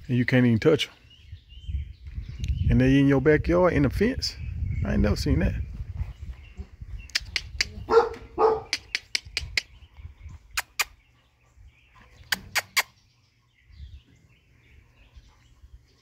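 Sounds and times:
sharp clicks and taps: 7.1s - 7.8s, 8.7s - 9.7s
dog barking: 7.9s - 8.8s.

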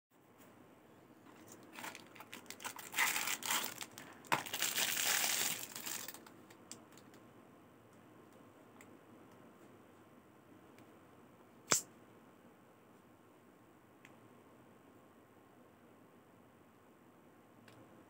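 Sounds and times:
plastic wrap crinkling: 1.3s - 7.2s.

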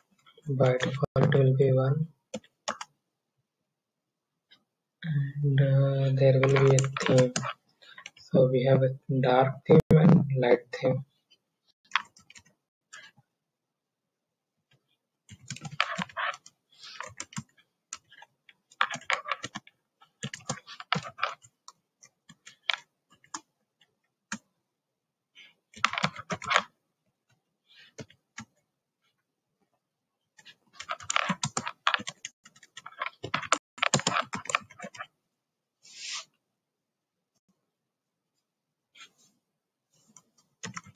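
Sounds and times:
typing on a keyboard: 2.3s - 2.9s, 6.4s - 8.1s, 15.3s - 23.5s, 25.8s - 26.7s, 30.4s - 35.1s, 40.6s - 40.9s.

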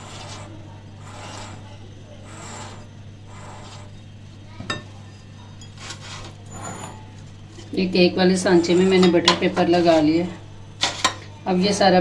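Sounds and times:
spatula scraping batter in bowl: 0.0s - 4.0s, 5.7s - 7.1s, 8.3s - 11.9s.

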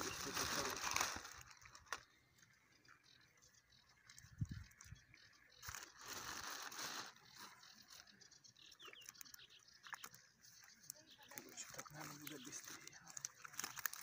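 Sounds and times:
wet mesh net rustling: 0.0s - 2.1s, 5.6s - 7.7s.

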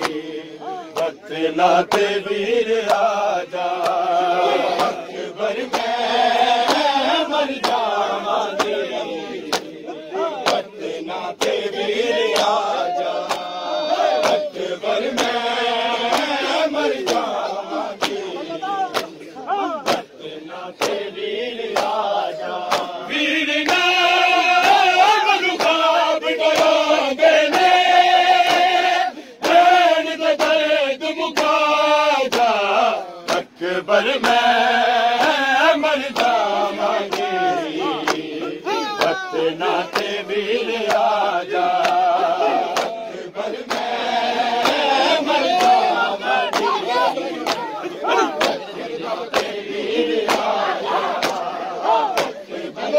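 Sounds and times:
crowd of men chanting: 0.0s - 52.9s
chest beating slaps: 18.0s - 20.2s, 51.1s - 51.5s.

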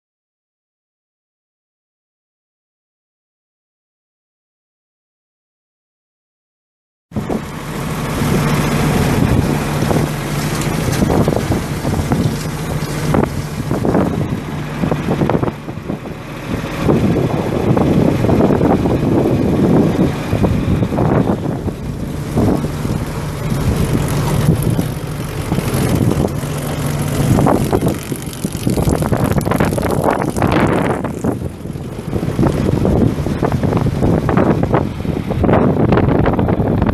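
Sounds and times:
engine running steadily: 7.1s - 36.9s
wind buffeting microphone: 7.2s - 36.9s.

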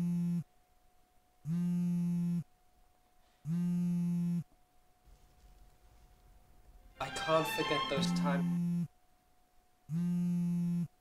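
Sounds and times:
low buzzy electronic tone: 0.0s - 0.5s, 1.4s - 2.5s, 3.5s - 4.5s, 8.2s - 8.9s, 9.9s - 11.0s.

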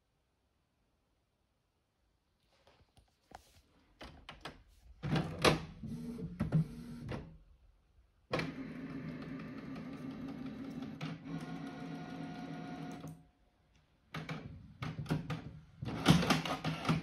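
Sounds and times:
printer motor whirring: 5.8s - 7.2s, 8.4s - 13.2s.

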